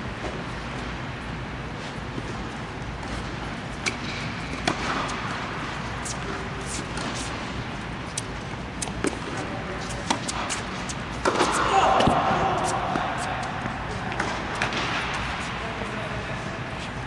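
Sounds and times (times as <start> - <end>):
steady background noise: 0.0 - 17.0
tennis ball struck by rackets: 3.8 - 5.4, 8.2 - 15.4
tennis ball bouncing on hard court: 3.8 - 7.5, 8.1 - 15.4.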